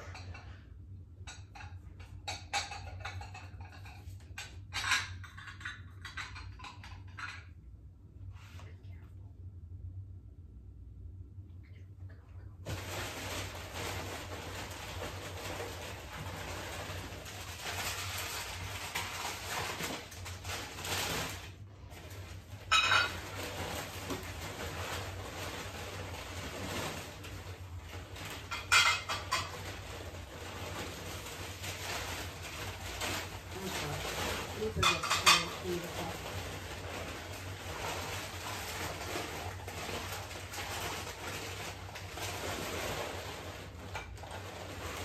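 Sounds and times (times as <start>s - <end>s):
rustling of packing paper: 12.6s - 45.0s.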